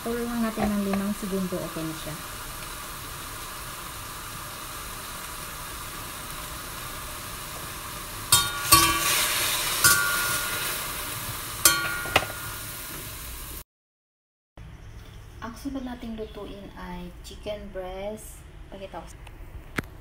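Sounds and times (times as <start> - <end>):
vegetables sizzling in a wok: 0.0 - 13.6
metal utensil scraping wok: 8.3 - 13.1.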